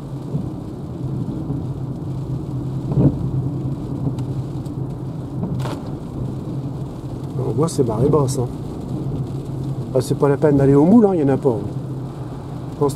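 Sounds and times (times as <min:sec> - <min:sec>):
tyres on wet road: 0:00.0 - 0:12.9.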